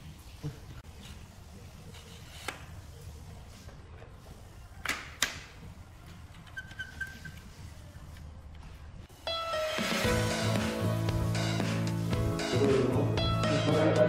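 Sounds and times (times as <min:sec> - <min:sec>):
faint short squeak: 0:06.5 - 0:07.5.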